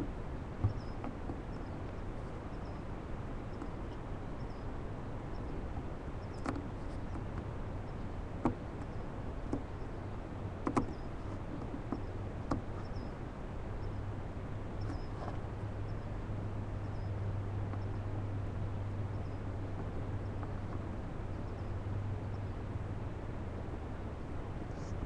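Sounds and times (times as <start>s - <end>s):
microphone hiss and hum: 0.0s - 25.0s
owl feeding clicks and scratches: 5.4s - 9.9s, 10.6s - 13.2s.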